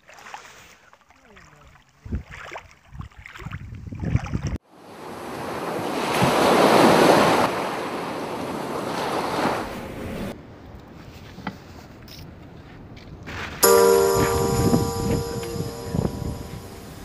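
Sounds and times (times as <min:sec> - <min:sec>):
surf washing on beach: 0:04.9 - 0:10.1.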